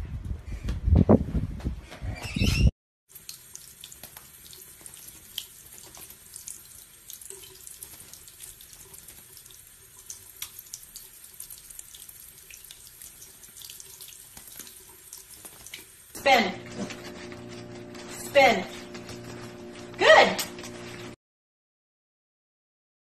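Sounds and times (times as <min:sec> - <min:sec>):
small splashes and drips: 0:03.1 - 0:16.5
faucet water running into sink: 0:03.1 - 0:21.2.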